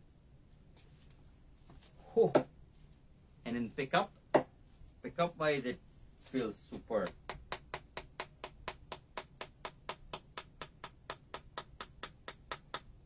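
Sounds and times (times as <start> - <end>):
cricket bat being tapped: 6.7 - 13.0.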